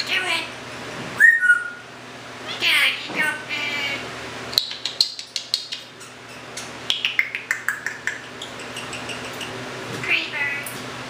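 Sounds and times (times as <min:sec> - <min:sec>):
parrot chirping: 0:01.2 - 0:01.8, 0:04.6 - 0:09.6
parrot clicking: 0:04.6 - 0:09.6.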